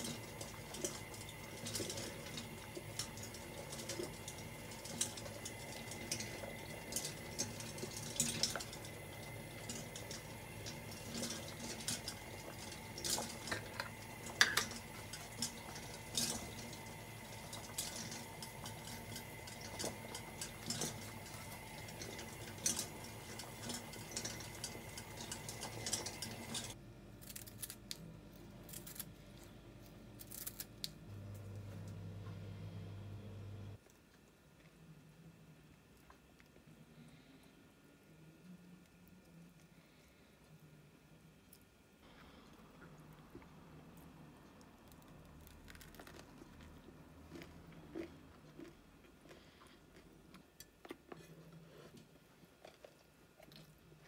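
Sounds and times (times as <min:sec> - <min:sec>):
electrical hum: 0:00.0 - 0:54.0.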